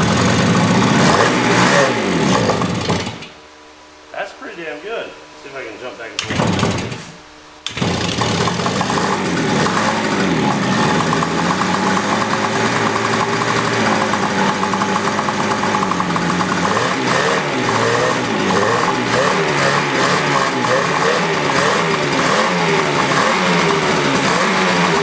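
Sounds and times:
two-stroke engine idling and revving: 0.0 - 3.3, 6.2 - 7.0, 7.7 - 25.0.

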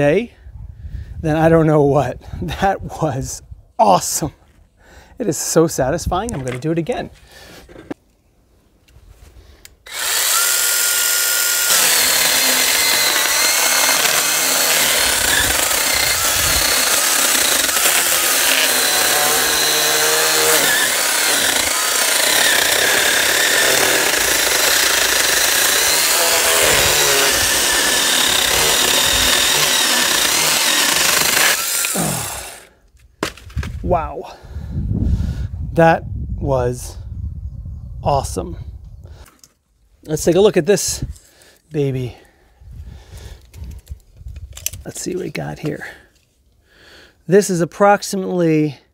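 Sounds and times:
mini chainsaw cutting log: 9.8 - 32.8.

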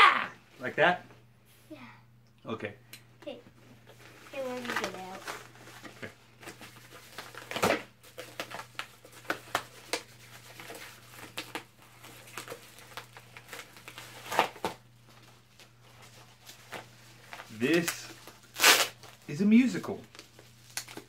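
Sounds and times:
paper and plastic crinkling: 3.9 - 21.0
mailer tearing: 17.5 - 19.2.

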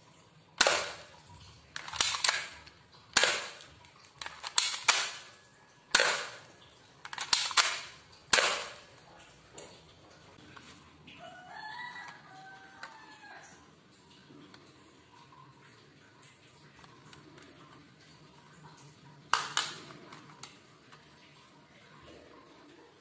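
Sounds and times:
airsoft pistol shots: 0.6 - 1.1, 3.2 - 3.6, 4.4 - 5.3, 5.9 - 6.5, 7.2 - 8.8.

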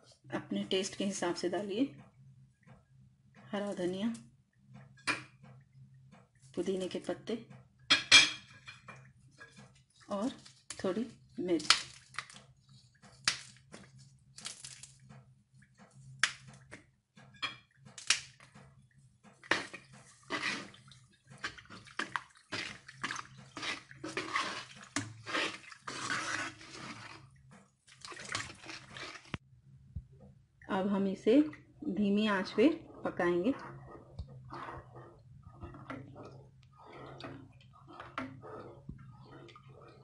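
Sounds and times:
liquid sloshing and scraping: 8.4 - 30.4, 31.3 - 40.0.

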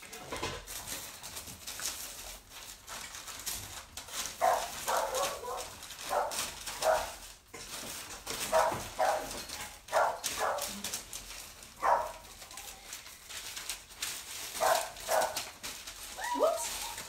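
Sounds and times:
dog barking: 4.4 - 7.2, 8.5 - 10.8, 11.8 - 12.3, 14.6 - 15.4.

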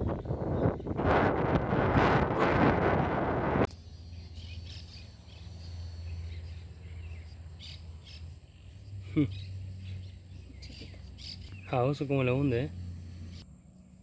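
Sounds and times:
wind buffeting microphone: 0.0 - 3.7
faint bird chirps: 3.7 - 13.5.

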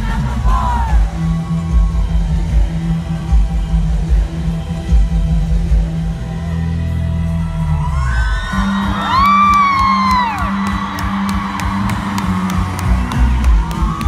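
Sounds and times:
drum kit beat: 8.6 - 14.0.

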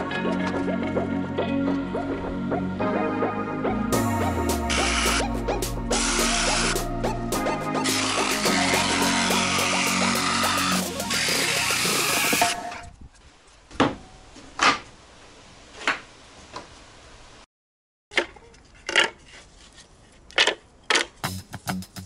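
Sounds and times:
music: 0.0 - 12.9, 21.2 - 22.0.

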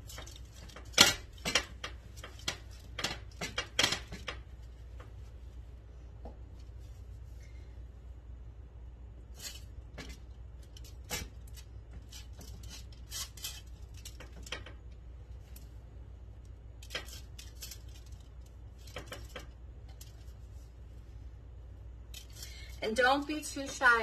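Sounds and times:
low steady hum: 0.0 - 24.0
aluminium foil crinkling: 10.6 - 14.8, 16.8 - 20.7.

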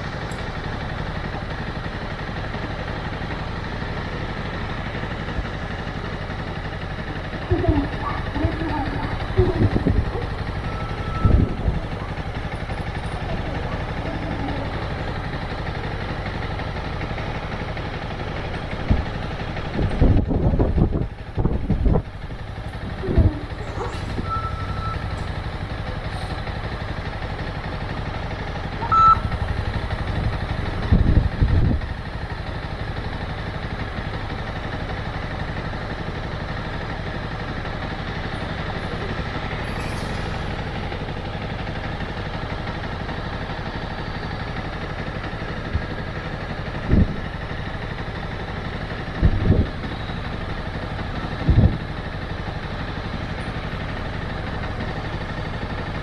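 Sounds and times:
motorcycle engine running: 0.0 - 56.0
short high beeps: 10.6 - 11.5, 24.2 - 25.1, 28.8 - 29.3.

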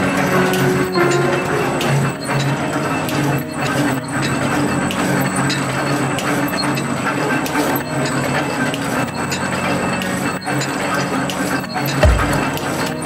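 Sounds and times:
wire machine mechanical clatter: 0.0 - 13.0.

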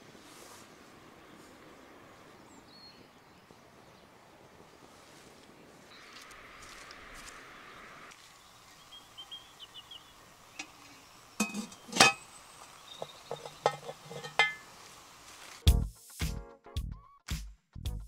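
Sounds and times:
metal lid clanking on pot: 11.4 - 12.2, 13.0 - 14.7.

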